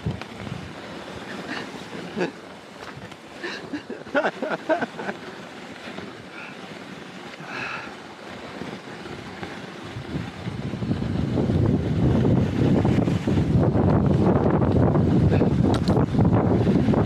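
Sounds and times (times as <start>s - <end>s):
wind buffeting microphone: 0.0s - 1.9s, 8.8s - 17.0s
low rumbling rush: 0.0s - 17.0s.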